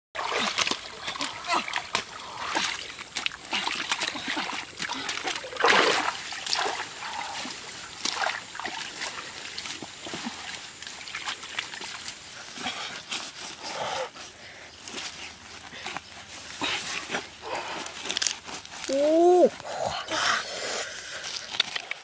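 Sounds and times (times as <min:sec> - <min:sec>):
splashing in muddy water: 0:00.2 - 0:13.8.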